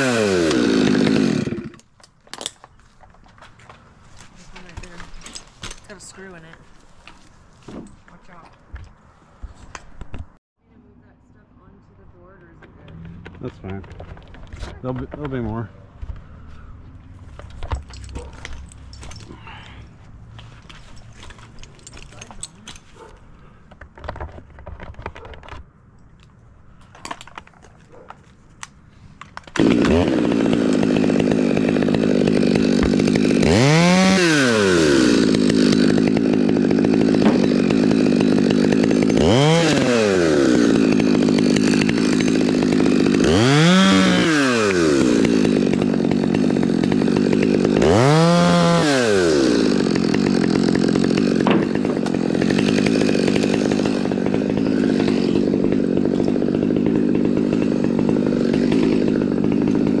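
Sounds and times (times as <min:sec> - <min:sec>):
chainsaw revving: 0:00.0 - 0:01.8, 0:29.5 - 1:00.0.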